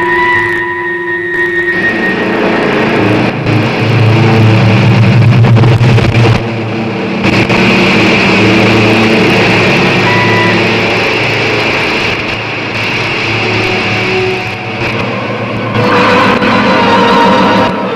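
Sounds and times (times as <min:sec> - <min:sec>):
low hum: 0:00.0 - 0:17.9
rocket engine rushing: 0:00.0 - 0:17.9
electronic music tones: 0:09.9 - 0:11.2.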